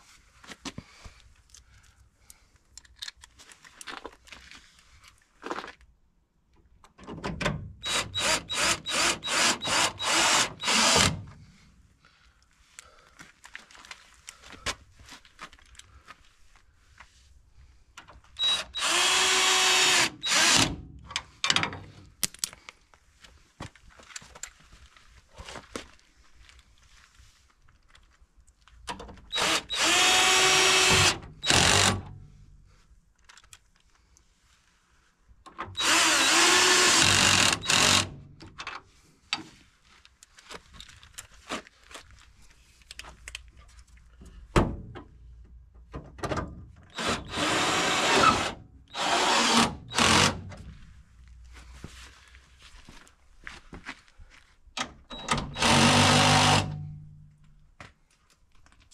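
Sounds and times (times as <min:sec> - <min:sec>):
clicks and knocks of metal parts: 0:02.7 - 0:04.2, 0:21.0 - 0:22.8
cordless drill running: 0:07.8 - 0:11.2, 0:18.4 - 0:20.7, 0:29.3 - 0:32.0, 0:35.8 - 0:38.1, 0:47.0 - 0:50.4, 0:55.5 - 0:56.8.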